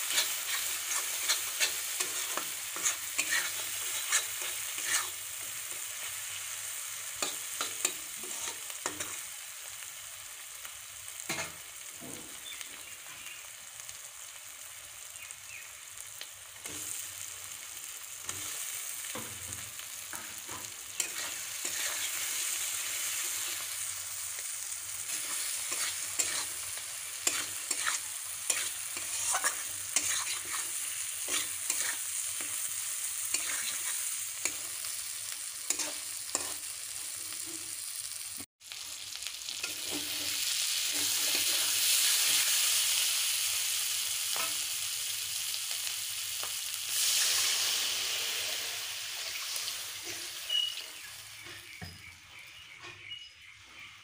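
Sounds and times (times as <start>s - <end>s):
spatula scraping pan: 0.0s - 5.9s, 7.2s - 9.2s, 20.1s - 22.4s, 25.1s - 32.7s, 33.3s - 34.7s, 35.6s - 36.7s, 39.6s - 42.4s
spices sizzling in oil: 0.0s - 54.0s.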